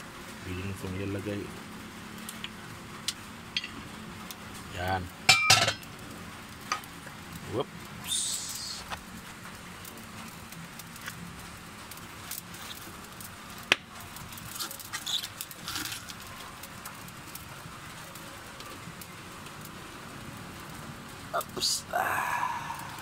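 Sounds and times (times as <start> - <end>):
steady low hiss: 0.0 - 23.0.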